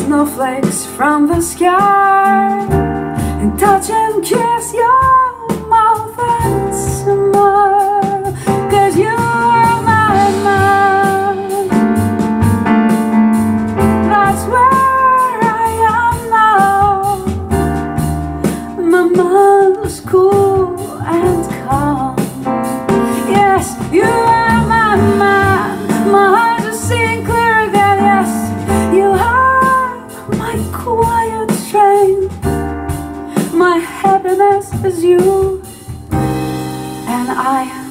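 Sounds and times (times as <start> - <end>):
woman singing: 0.0 - 12.2, 14.0 - 17.6, 18.4 - 36.0, 37.0 - 37.9
low bass line: 8.6 - 14.8, 21.3 - 29.5.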